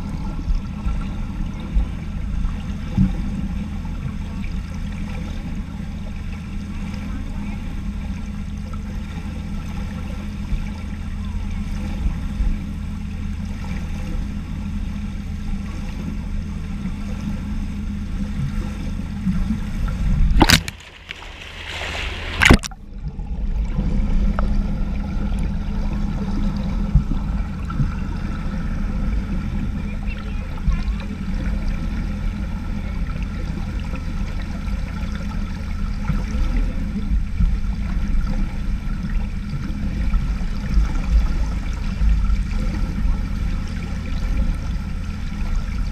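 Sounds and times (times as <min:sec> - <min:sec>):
churning water and bubbles: 0:00.0 - 0:45.9
underwater low hum: 0:00.0 - 0:45.9
sharp underwater knock: 0:20.4 - 0:22.8
turbulent water rushing: 0:20.4 - 0:22.8.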